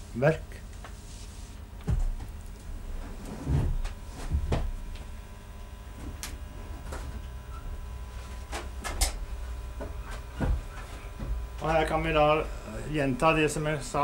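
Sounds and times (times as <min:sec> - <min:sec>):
steady low hum: 0:00.0 - 0:14.0
shuffling footsteps and knocks: 0:00.8 - 0:04.9, 0:08.1 - 0:12.0.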